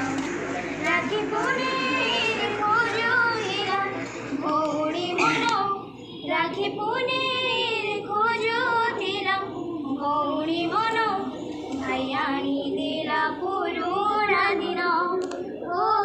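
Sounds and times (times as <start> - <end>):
woman singing: 0.8 - 16.0.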